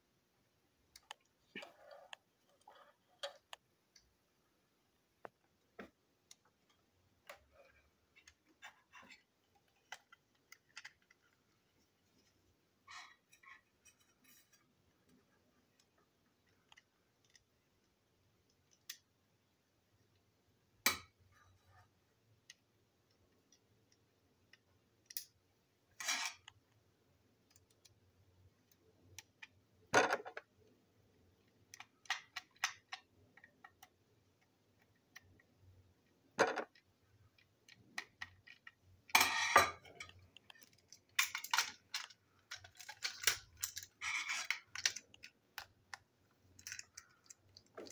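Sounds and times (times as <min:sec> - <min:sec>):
plastic toy parts clicking: 0:31.6 - 0:35.4, 0:40.0 - 0:47.9
plastic parts rattling: 0:39.7 - 0:47.9.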